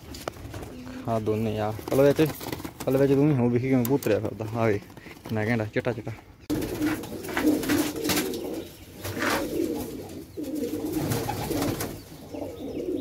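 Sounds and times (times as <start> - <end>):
wing flaps: 1.7 - 3.2
pigeons cooing: 6.5 - 13.0.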